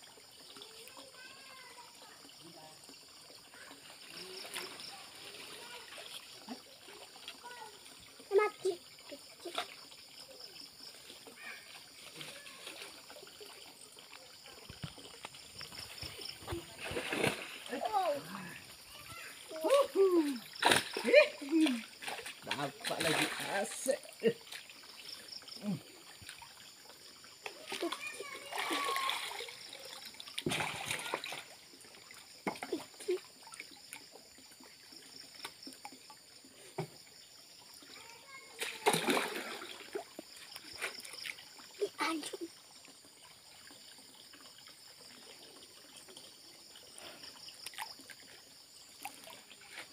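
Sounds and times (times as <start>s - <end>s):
water splashing and trickling: 0.0s - 49.9s
sharp splash: 15.7s - 25.7s, 27.5s - 33.6s, 38.5s - 42.2s.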